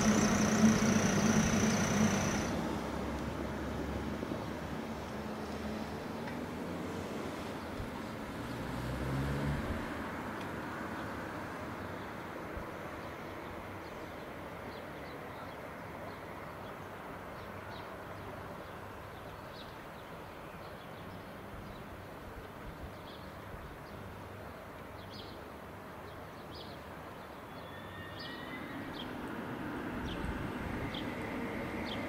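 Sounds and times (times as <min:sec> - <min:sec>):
small birds chirping: 0:00.0 - 0:02.6
railway station rumble: 0:00.0 - 0:06.3, 0:27.7 - 0:32.0.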